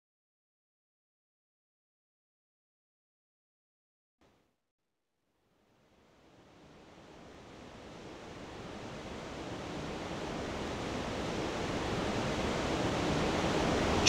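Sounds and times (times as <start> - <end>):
steady rushing ambient noise: 5.9 - 14.0.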